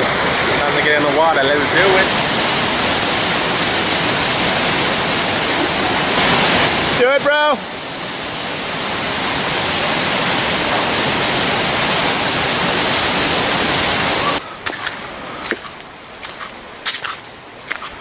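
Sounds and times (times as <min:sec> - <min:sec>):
waterfall rushing: 0:00.0 - 0:16.0
footsteps on a trail: 0:14.6 - 0:18.0.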